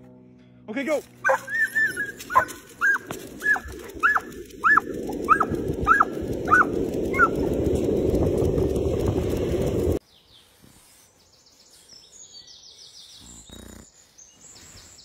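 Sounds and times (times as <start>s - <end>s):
dog yipping: 1.2s - 7.4s.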